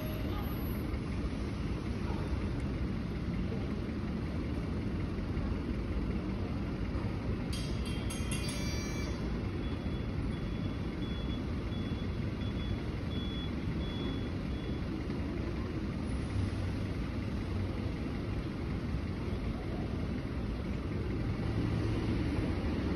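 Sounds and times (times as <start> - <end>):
street traffic rumble: 0.0 - 22.9
vehicle engine running: 0.0 - 22.9
clicks with high ringing tones: 7.6 - 10.5
faint high beep: 8.2 - 14.8.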